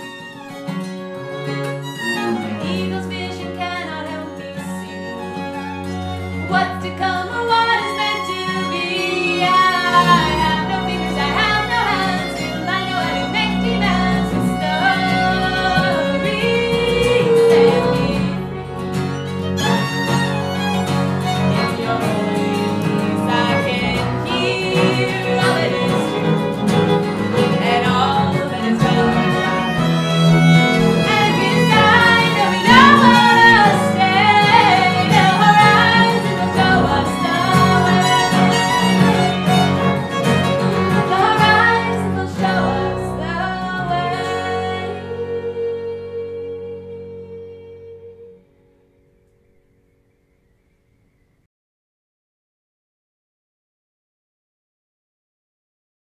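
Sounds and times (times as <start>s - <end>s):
fiddle: 0.0s - 48.4s
acoustic guitar: 0.0s - 51.2s
woman singing: 2.4s - 5.0s, 6.4s - 18.7s, 21.4s - 39.8s, 40.7s - 48.4s
upright bass: 8.3s - 46.2s.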